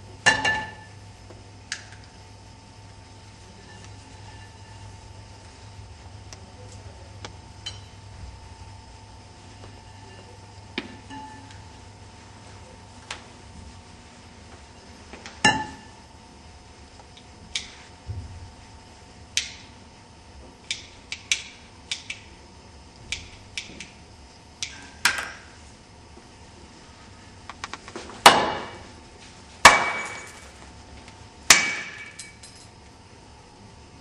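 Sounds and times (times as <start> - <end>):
loud ringing strikes: 29.6 - 30.5.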